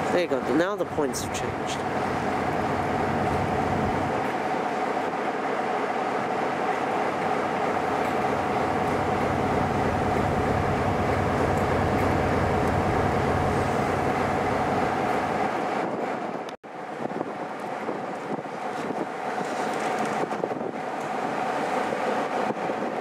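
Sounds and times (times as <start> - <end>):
diesel locomotive idling: 1.0 - 4.2, 7.0 - 15.5.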